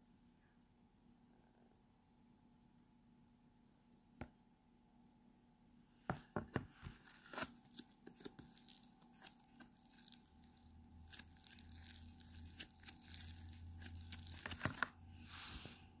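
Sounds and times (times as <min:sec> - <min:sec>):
slime crackling and popping: 0:07.1 - 0:15.0.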